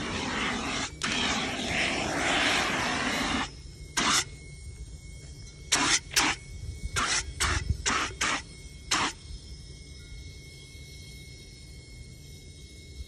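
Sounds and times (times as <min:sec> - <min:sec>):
fire extinguisher hissing blasts: 0:00.0 - 0:04.3.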